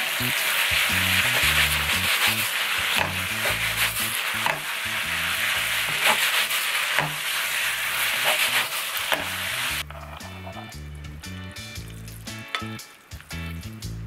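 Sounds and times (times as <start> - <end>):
noodles sizzling in frying pan: 0.0 - 10.7, 11.6 - 13.9
wooden spatula scraping pan: 0.5 - 10.7.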